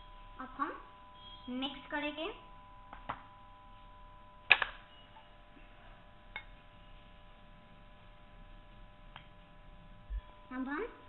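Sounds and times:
faint electrical whine: 0.0 - 11.0.

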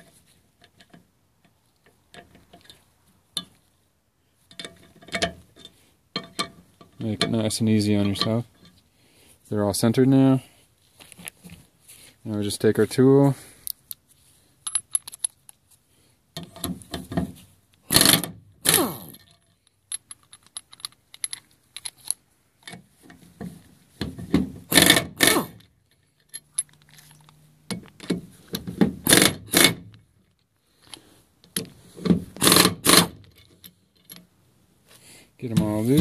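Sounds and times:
metallic clinks of socket on nuts: 14.6 - 15.6, 19.2 - 22.8, 25.9 - 28.2
impact wrench bursts: 17.9 - 19.2, 24.7 - 25.6, 29.0 - 29.9, 32.4 - 33.2.

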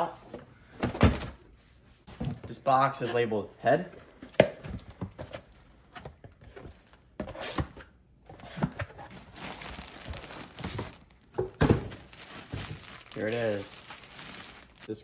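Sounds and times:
cardboard flaps rustling: 8.4 - 14.9
plastic bag crinkling: 9.1 - 15.0.

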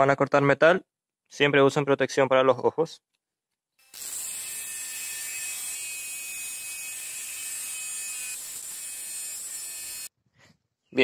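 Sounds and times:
grinder cutting steel: 3.8 - 10.2.

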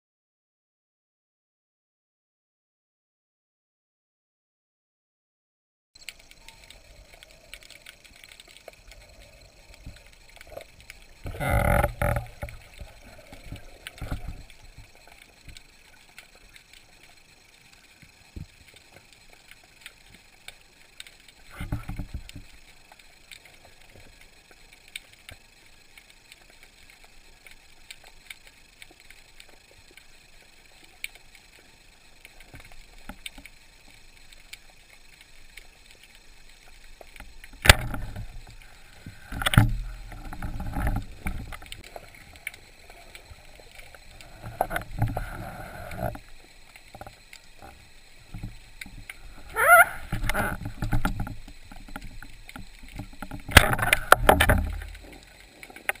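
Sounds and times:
faint underwater crackling: 6.0 - 56.0
rushing water noise: 36.6 - 56.0.

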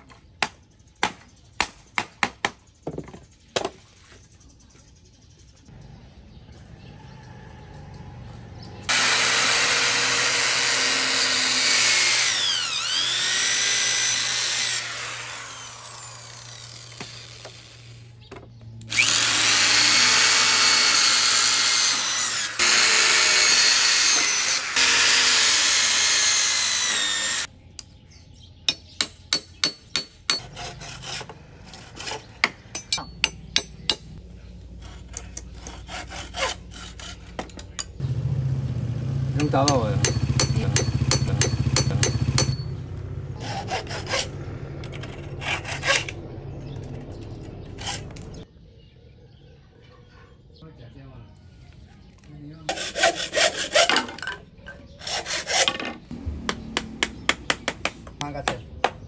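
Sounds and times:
hand saw cutting bamboo: 8.9 - 17.6, 19.0 - 27.5, 29.3 - 33.0, 34.7 - 37.5, 39.4 - 42.6, 43.4 - 46.2, 52.7 - 54.2, 55.0 - 56.0
electric drill boring into bamboo: 8.9 - 18.1, 18.8 - 27.5.

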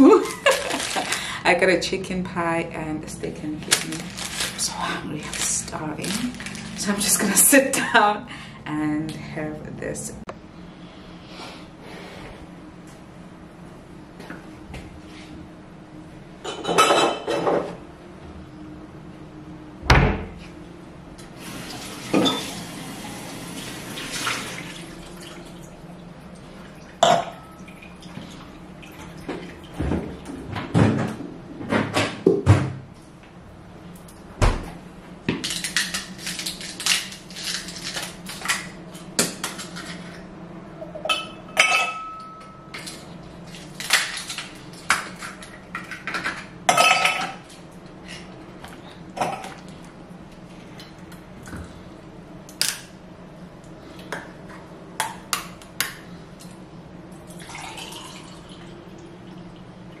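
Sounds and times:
juice pouring into glass: 57.3 - 58.7.

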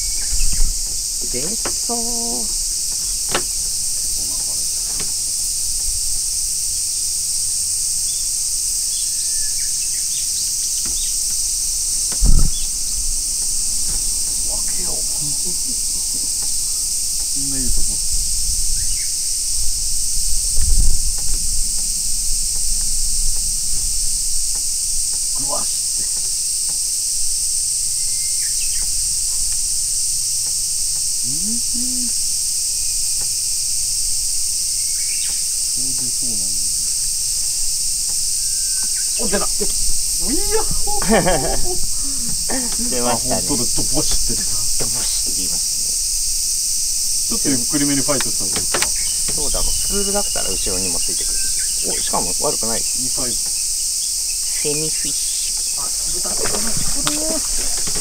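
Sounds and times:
insect chorus drone: 0.0 - 58.0
man humming: 1.2 - 2.6, 12.2 - 12.7, 14.3 - 16.4, 17.4 - 18.1, 31.2 - 32.3, 35.8 - 36.7, 39.2 - 45.4
loud low thump: 12.1 - 16.4.

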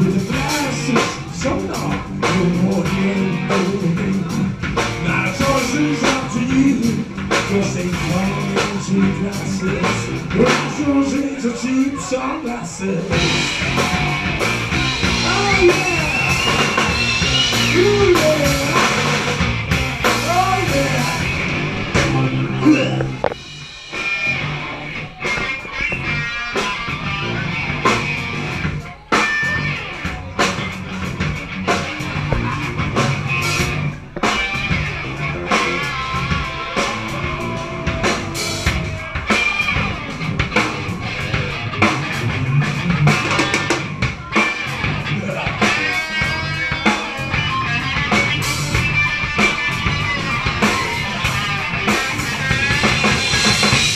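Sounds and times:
drum kit and electric bass: 0.0 - 53.9
electric guitar lead: 12.7 - 53.9.

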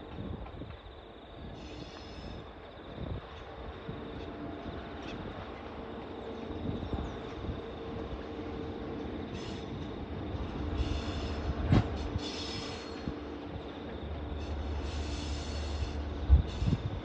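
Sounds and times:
diesel locomotive rumble: 0.0 - 17.0.

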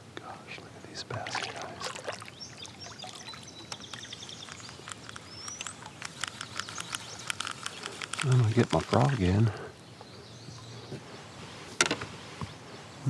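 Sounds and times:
kayak paddle dipping into water: 1.1 - 6.1
water dripping off paddle: 1.2 - 6.2.

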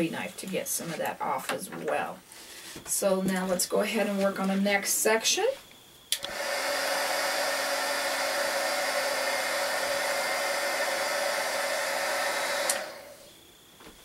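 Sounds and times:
heat gun blowing and humming: 6.1 - 13.3
fan winding down: 6.1 - 13.4.

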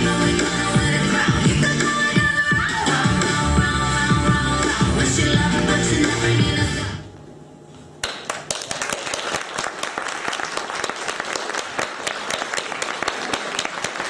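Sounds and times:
dance music: 0.0 - 7.0
audience applauding: 8.0 - 14.0.

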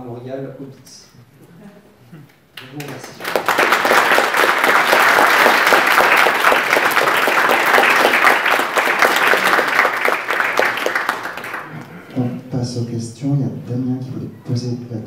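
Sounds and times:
audience applauding: 2.6 - 12.1.

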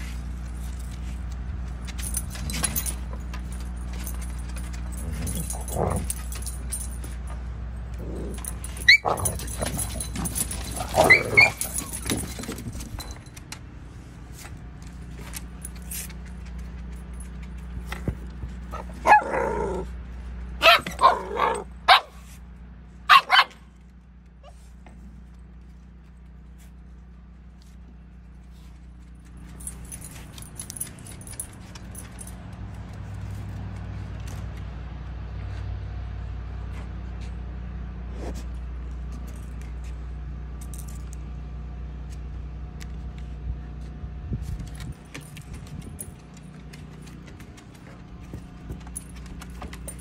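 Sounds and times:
dogs yipping and barking: 8.0 - 12.6, 18.6 - 22.4, 23.0 - 23.7.

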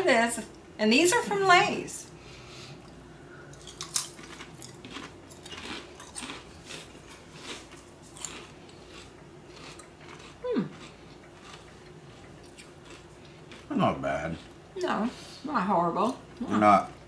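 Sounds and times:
person crunching chips: 3.5 - 11.7.

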